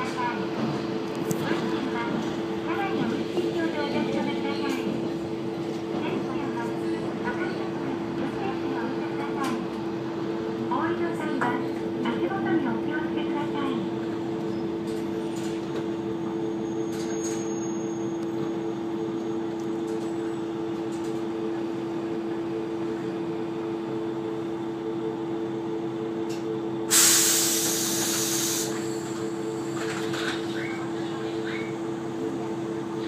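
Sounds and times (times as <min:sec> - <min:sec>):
diesel railcar engine idling: 0:00.1 - 0:33.0
compressed air hiss: 0:26.9 - 0:28.8.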